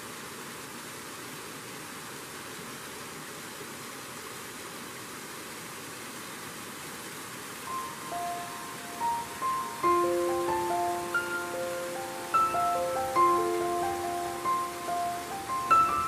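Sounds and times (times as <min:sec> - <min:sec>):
waterfall rushing over rock: 0:00.0 - 0:16.0
musical notes: 0:07.7 - 0:16.0.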